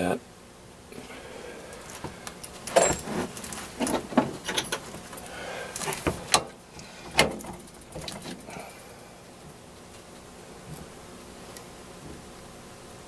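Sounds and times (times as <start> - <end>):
metal clinks and knocks: 2.4 - 6.5.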